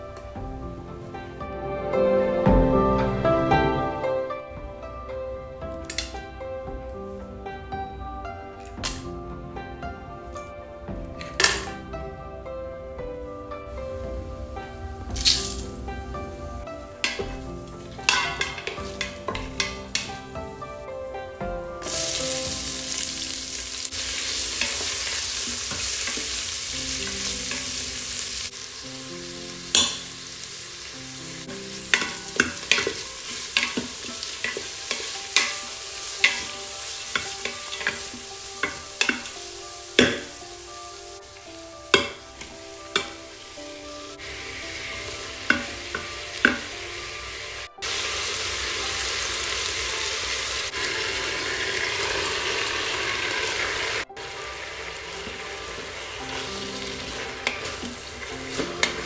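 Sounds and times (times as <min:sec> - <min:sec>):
onions sizzling in hot oil: 0:14.5 - 0:16.0, 0:16.6 - 0:59.0
spoon knocking against pot: 0:18.0 - 0:20.2.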